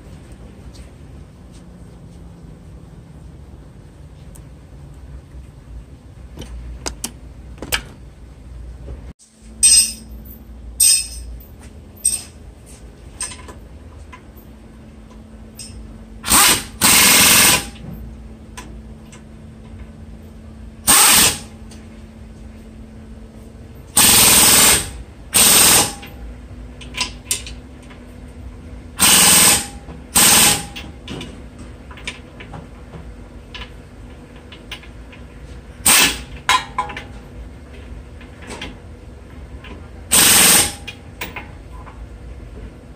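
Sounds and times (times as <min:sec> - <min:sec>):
pneumatic impact wrench hammering: 0:15.6 - 0:17.8, 0:20.8 - 0:21.6, 0:24.0 - 0:26.2, 0:29.0 - 0:30.9, 0:35.8 - 0:37.0, 0:40.1 - 0:41.0.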